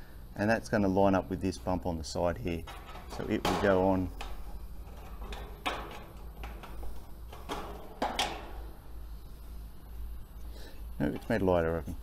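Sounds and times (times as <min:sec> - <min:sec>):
low steady hum: 0:00.0 - 0:12.0
metal scraping and clicking: 0:02.6 - 0:08.7, 0:11.0 - 0:12.0.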